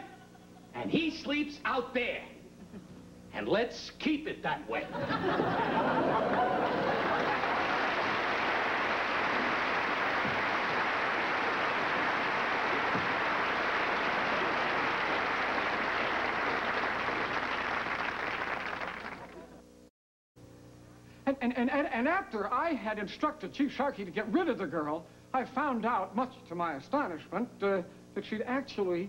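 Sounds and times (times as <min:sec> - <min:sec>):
audience applauding: 0:05.8 - 0:19.6.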